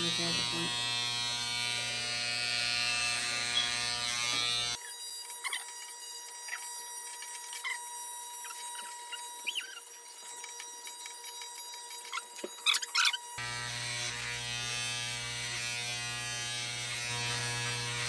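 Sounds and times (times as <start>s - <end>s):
electric hair clippers buzzing: 0.0s - 18.0s
faint high squeaks: 4.8s - 13.4s.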